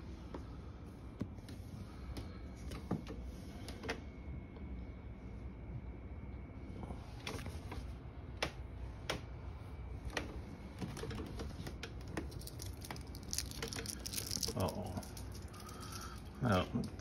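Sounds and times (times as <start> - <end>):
candy wrapper crinkling: 12.2 - 16.9.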